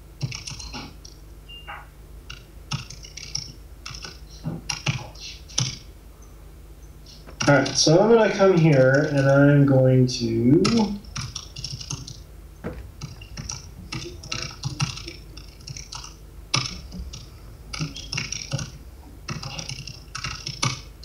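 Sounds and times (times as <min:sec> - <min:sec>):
laptop keyboard typing: 0:00.2 - 0:01.2, 0:02.2 - 0:05.9, 0:07.4 - 0:09.5, 0:10.6 - 0:12.3, 0:13.0 - 0:21.0.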